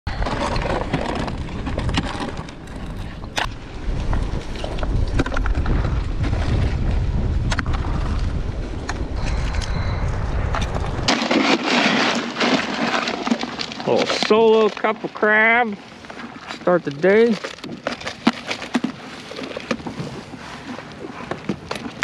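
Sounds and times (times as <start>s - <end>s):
wind buffeting microphone: 0.1s - 13.0s
stones clicking: 11.1s - 14.8s.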